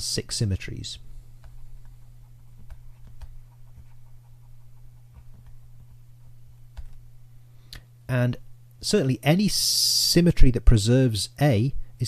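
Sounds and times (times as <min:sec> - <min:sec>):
low electrical hum: 0:00.0 - 0:12.0
stylus tapping and scratching: 0:01.4 - 0:07.1.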